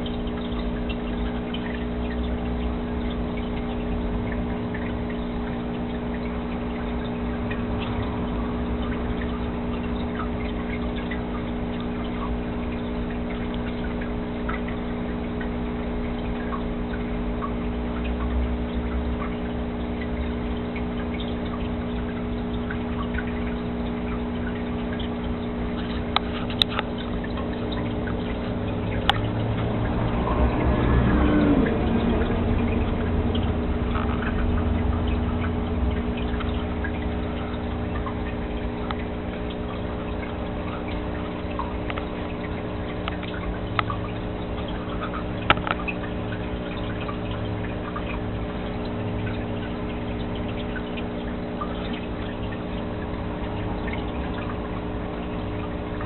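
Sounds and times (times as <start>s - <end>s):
aquarium pump hum: 0.0s - 56.0s
aquarium water trickling: 0.0s - 56.0s.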